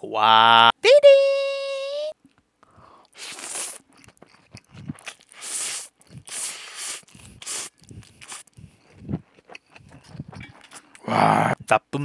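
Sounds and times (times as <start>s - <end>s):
wet chewing and smacking: 3.1s - 11.1s
person slurping noodles: 3.1s - 11.6s.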